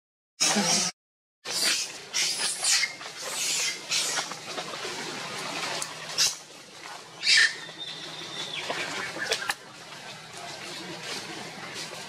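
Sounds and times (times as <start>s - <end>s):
macaque screeching: 1.5s - 4.4s, 7.2s - 8.6s.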